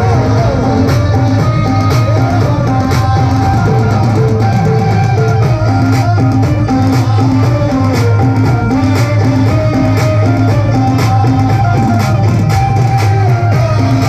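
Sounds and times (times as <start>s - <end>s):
held stepped vocal melody: 0.0s - 14.0s.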